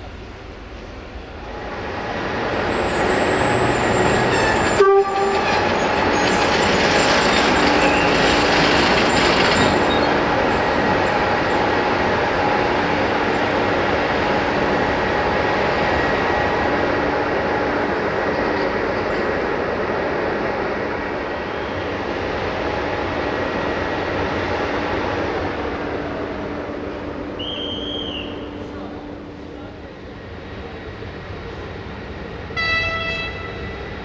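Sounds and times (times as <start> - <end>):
electric locomotive running: 0.0 - 34.0
locomotive horn toot: 3.4 - 5.7, 32.6 - 33.8.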